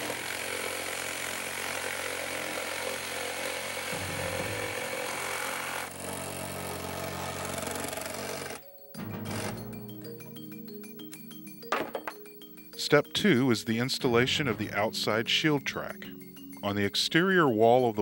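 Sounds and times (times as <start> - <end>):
jigsaw cutting through wood: 0.0 - 8.6, 9.2 - 9.7
music with mallet-like tones: 8.6 - 18.0.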